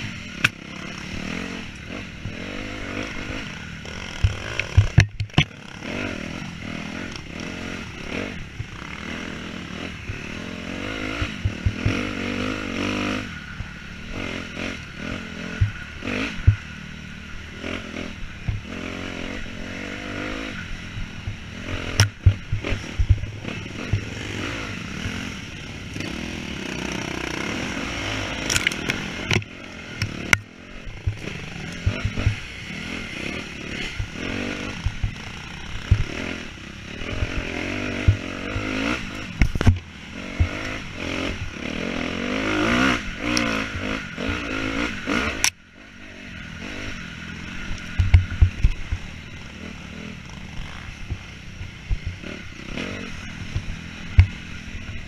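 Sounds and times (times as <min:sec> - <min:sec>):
dirt bike engine revving: 0:00.0 - 0:55.0
knocks and clatter over bumps: 0:03.2 - 0:05.8, 0:08.4 - 0:09.1, 0:11.1 - 0:12.2, 0:15.5 - 0:16.8, 0:18.3 - 0:18.8, 0:21.0 - 0:26.2, 0:28.4 - 0:32.7, 0:33.3 - 0:36.4, 0:37.0 - 0:41.8, 0:47.7 - 0:49.2, 0:50.2 - 0:55.0.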